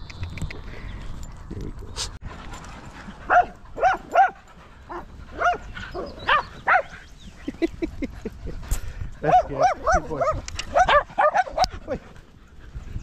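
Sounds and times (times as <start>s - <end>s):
small dog barking: 3.3s - 5.6s, 6.3s - 6.9s, 9.3s - 11.7s.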